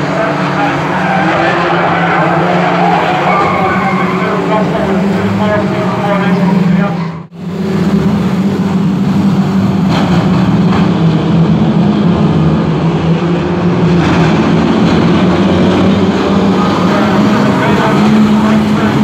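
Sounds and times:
racing car engines: 0.0 - 19.0.

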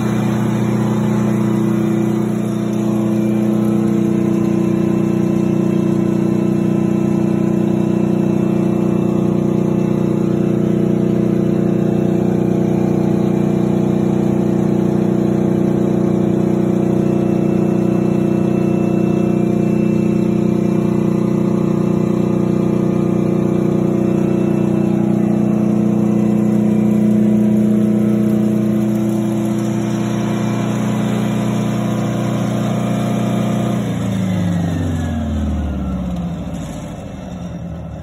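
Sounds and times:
diesel generator engine running: 0.0 - 38.0
high-pitched whine: 16.8 - 37.0.

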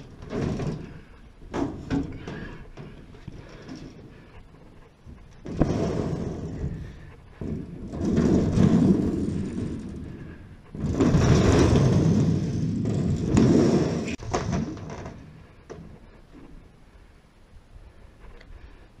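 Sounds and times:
metal plate scraping across roof: 0.0 - 4.4, 5.1 - 16.0.

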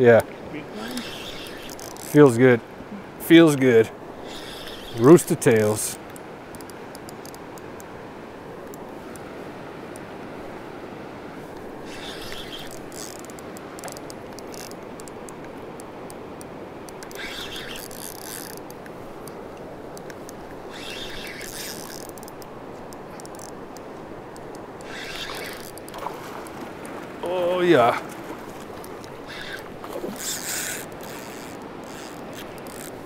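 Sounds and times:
shallow river rushing: 0.0 - 33.0
fishing reel winding: 0.8 - 2.2, 4.3 - 5.0, 11.9 - 15.1, 17.0 - 18.8, 20.7 - 22.5, 23.2 - 23.6, 24.8 - 25.9, 29.3 - 33.0
reel ticking: 0.8 - 2.3, 4.3 - 7.9, 11.8 - 16.2, 16.9 - 28.0, 28.6 - 33.0.

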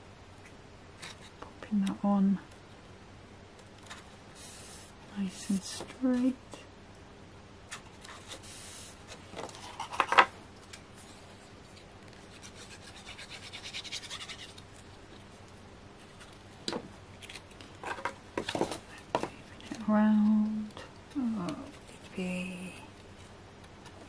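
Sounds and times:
hands rubbing paper: 11.6 - 14.8.

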